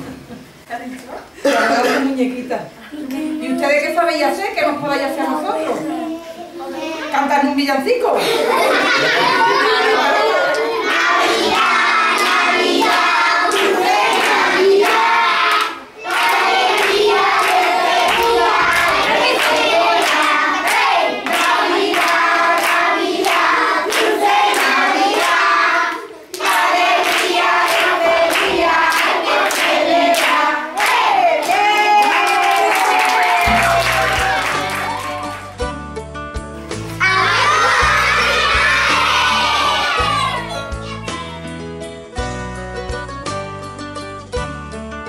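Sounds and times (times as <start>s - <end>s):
children singing a carol: 8.9s - 30.9s, 37.0s - 40.6s
rhythmic hand clapping: 10.4s - 35.8s.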